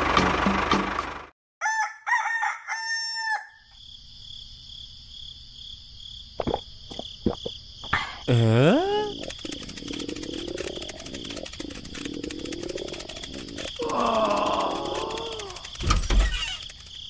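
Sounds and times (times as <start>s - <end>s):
rooster crowing: 1.6s - 3.7s
sharp clicks: 8.9s - 17.0s.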